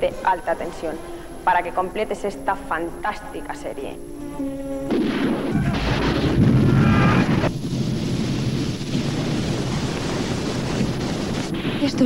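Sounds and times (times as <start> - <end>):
loud rumbling explosion: 4.9 - 12.0
rushing rumble: 5.0 - 12.0.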